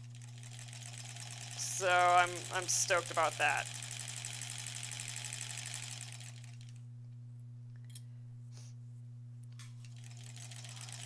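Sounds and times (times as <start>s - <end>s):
sewing machine stitching: 0.0s - 6.8s, 9.8s - 11.0s
steady low hum: 0.0s - 11.0s.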